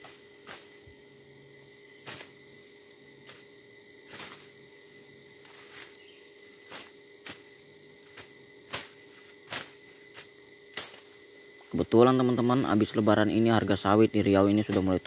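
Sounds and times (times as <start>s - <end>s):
weeds being cut by hand: 0.0s - 0.9s, 2.0s - 2.4s, 3.2s - 4.6s, 6.6s - 11.2s
insects droning: 0.0s - 15.0s.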